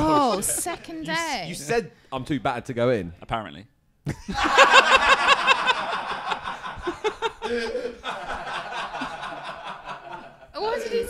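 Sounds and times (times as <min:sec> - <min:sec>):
people laughing: 0:00.0 - 0:01.5, 0:04.1 - 0:11.0.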